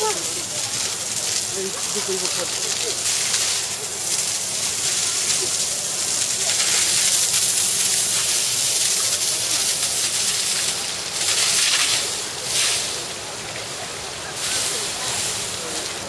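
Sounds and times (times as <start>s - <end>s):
water spray hissing on elephant: 0.0s - 16.0s.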